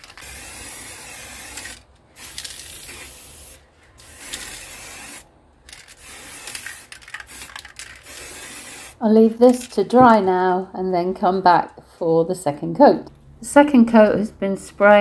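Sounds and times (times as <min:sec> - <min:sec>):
aerosol spray paint hissing: 0:00.1 - 0:05.3, 0:05.9 - 0:09.0.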